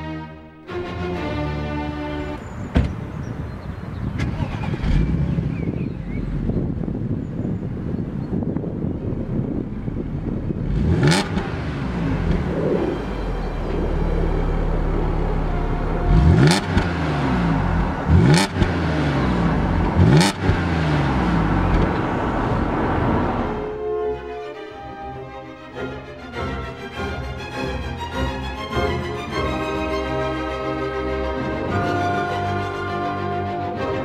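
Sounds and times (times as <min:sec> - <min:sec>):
car engine idling and revving: 0:02.3 - 0:24.1.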